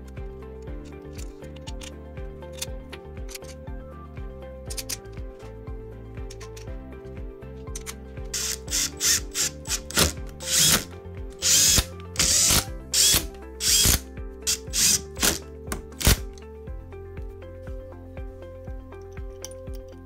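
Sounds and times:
background music: 0.0 - 20.0
cordless driver trigger bursts: 8.4 - 15.4, 16.0 - 16.2.

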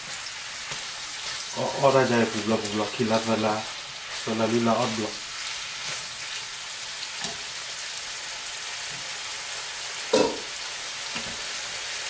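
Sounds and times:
steak sizzling in a frying pan: 0.0 - 12.0.

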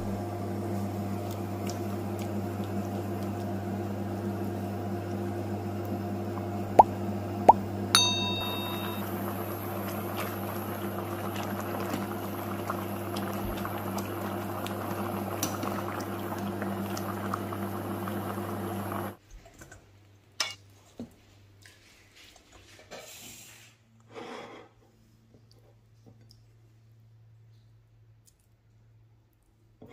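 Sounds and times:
steady hum: 6.2 - 19.2
metal skimmer clinking on pan: 8.0 - 9.0
water boiling in a pan: 8.2 - 19.2.

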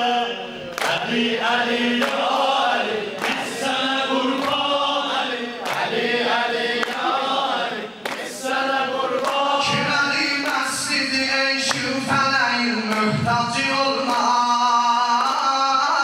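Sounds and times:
men chanting a hymn in chorus: 0.0 - 16.0
hand claps: 0.7 - 1.2, 1.9 - 2.4, 3.2 - 4.8, 5.6 - 10.9, 11.6 - 12.1, 12.8 - 15.7.

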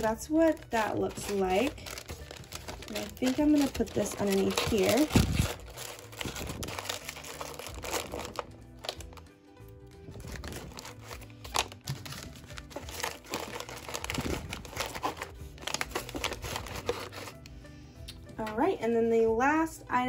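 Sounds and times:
plastic packaging crinkling: 0.0 - 17.5
background music: 0.0 - 20.0.

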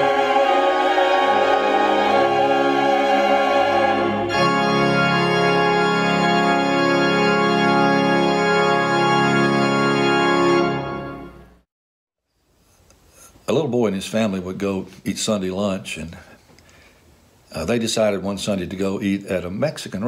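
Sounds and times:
church choir singing: 0.0 - 11.0
organ: 0.0 - 11.6.

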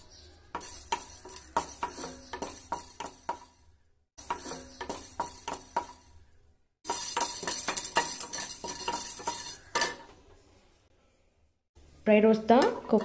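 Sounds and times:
dry grains rattling: 0.0 - 3.6, 4.2 - 9.9
wooden spatula scraping pan: 0.5 - 6.2, 6.8 - 10.4.

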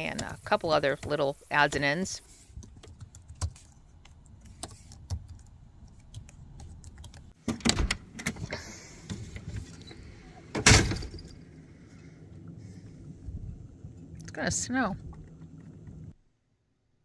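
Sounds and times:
door clicks: 7.4 - 8.6
screen door rattling: 10.0 - 11.5.

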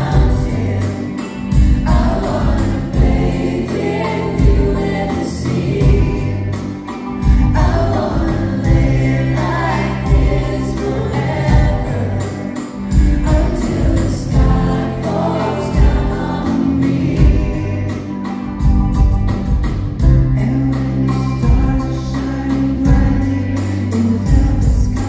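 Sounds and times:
man singing: 0.0 - 6.5, 20.3 - 25.0
keyboards: 0.0 - 25.0
drum beat: 1.6 - 3.6.

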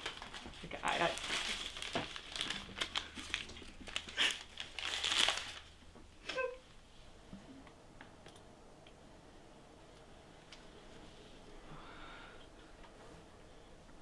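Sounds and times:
paper tissues rustling: 0.0 - 5.8.

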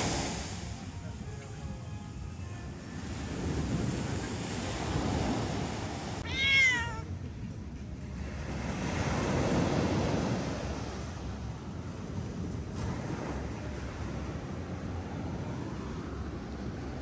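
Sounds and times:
low background rush: 0.0 - 17.0
cat meowing: 6.2 - 7.1.

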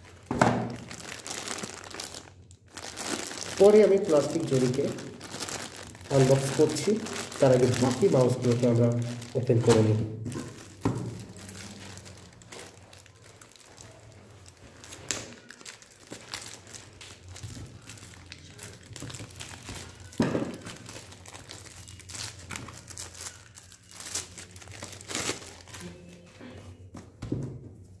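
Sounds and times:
plastic bag crinkling: 0.0 - 26.1.

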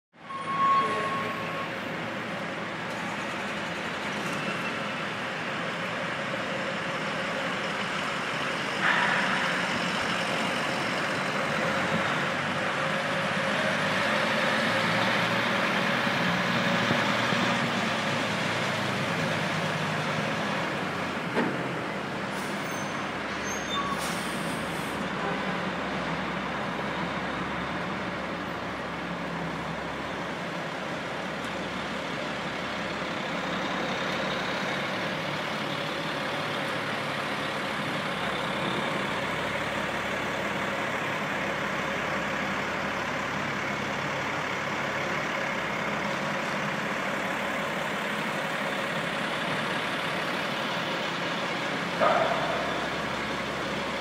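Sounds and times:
diesel truck engines running: 0.2 - 54.0
sharp knock: 8.8 - 9.6.

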